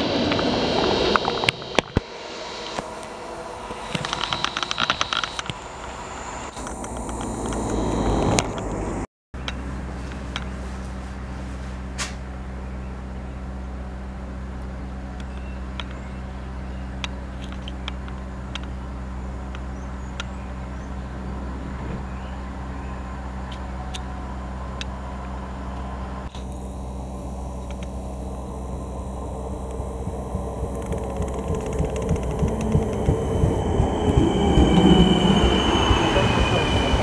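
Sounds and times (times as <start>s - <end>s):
train approaching slowly: 0.0s - 37.0s
low electric hum: 2.1s - 35.2s
train wheels clicking over rail joints: 29.6s - 37.0s.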